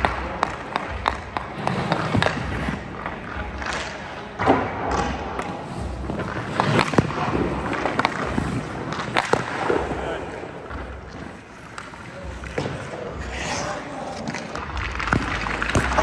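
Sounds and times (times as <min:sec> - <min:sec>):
skate blades scraping ice: 0:00.0 - 0:04.2, 0:05.4 - 0:16.0
hockey stick clicking on pucks: 0:00.0 - 0:09.9, 0:14.2 - 0:16.0
shots thudding into goalie pads: 0:06.1 - 0:10.1.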